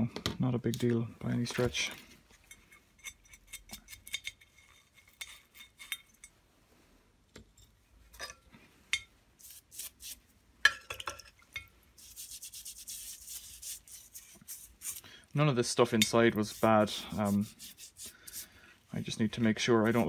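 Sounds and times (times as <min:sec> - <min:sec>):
brush scrubbing: 0:09.4 - 0:10.2, 0:12.0 - 0:15.0, 0:15.6 - 0:18.6, 0:19.3 - 0:20.0.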